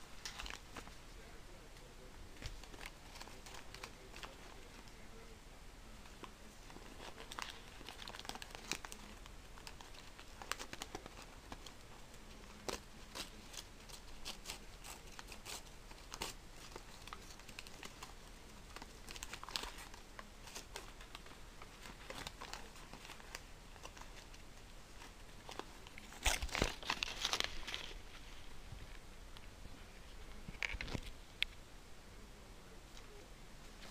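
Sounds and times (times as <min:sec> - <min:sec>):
paper crinkling and tearing: 0:00.1 - 0:01.0, 0:02.3 - 0:05.0, 0:06.0 - 0:28.5, 0:30.3 - 0:31.2.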